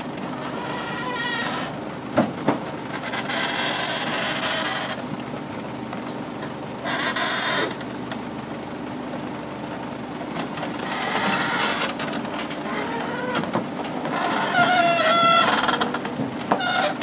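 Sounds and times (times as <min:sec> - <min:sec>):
metal squealing: 0:00.4 - 0:01.7, 0:14.1 - 0:17.0.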